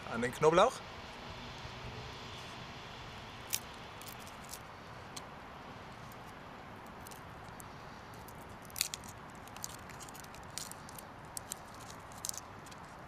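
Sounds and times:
garlic skin crackling: 3.4s - 4.7s, 6.1s - 13.0s.

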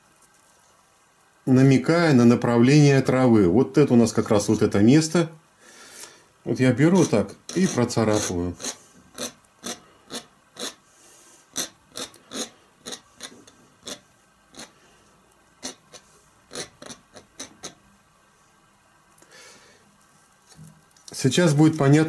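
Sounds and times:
palette knife scraping wet paint: 6.9s - 10.8s, 11.6s - 14.8s, 15.6s - 17.8s.

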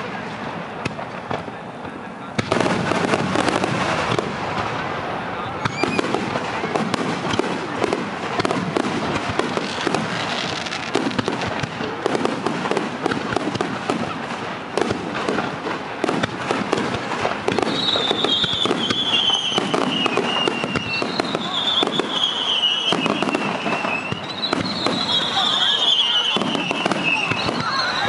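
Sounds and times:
firework whistle falling in pitch: 17.6s - 28.0s.

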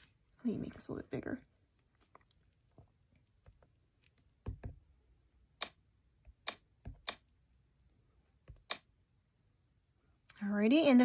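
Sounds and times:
fingertips tapping on glass screen: 2.7s - 4.9s.

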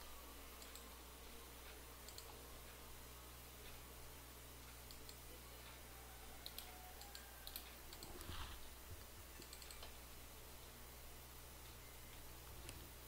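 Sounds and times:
steady low hum: 0.0s - 13.0s
mouse and keyboard clicks: 2.0s - 2.4s, 6.4s - 10.0s.

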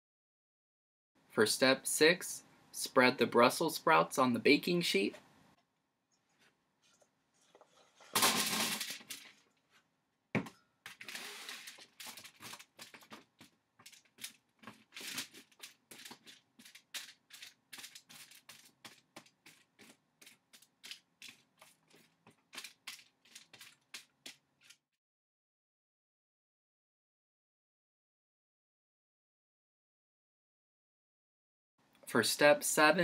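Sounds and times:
spatula scraping on foil: 13.9s - 20.6s.

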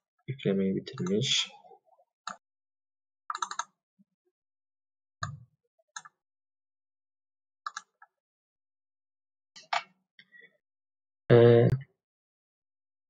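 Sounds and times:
computer mouse clicks: 3.3s - 3.7s, 7.7s - 8.0s.

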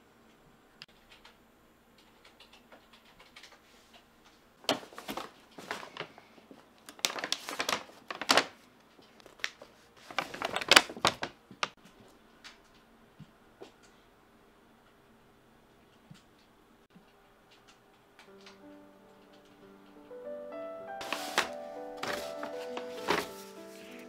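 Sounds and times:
paper bag crinkling: 4.7s - 11.8s, 21.0s - 24.0s.

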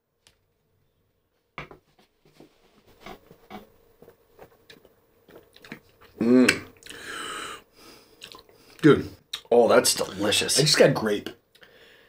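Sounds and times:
mouths smacking: 4.6s - 7.0s, 8.2s - 8.6s.

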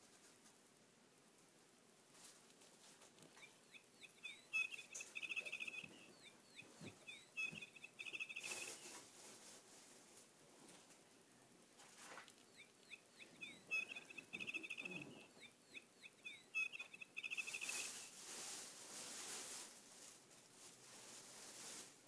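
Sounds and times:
feathers rustling: 2.2s - 10.1s, 11.9s - 22.0s
toy bird chirping and trilling: 3.2s - 9.0s, 12.3s - 18.1s.

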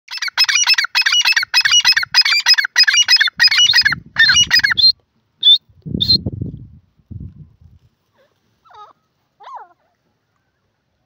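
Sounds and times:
bird calling: 0.1s - 6.2s.

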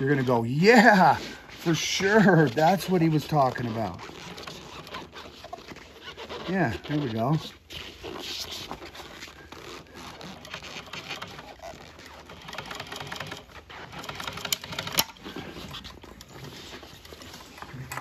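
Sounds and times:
sewing machine stitching: 9.6s - 17.4s.

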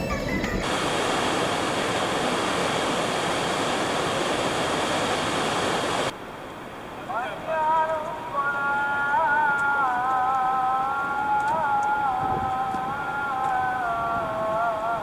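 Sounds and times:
waterfall rushing: 0.5s - 15.0s.

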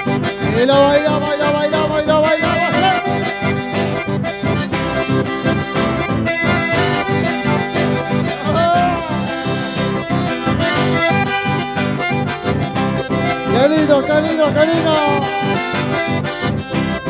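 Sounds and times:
accordion dance music: 0.0s - 17.0s
quick bass beat: 8.5s - 9.4s.

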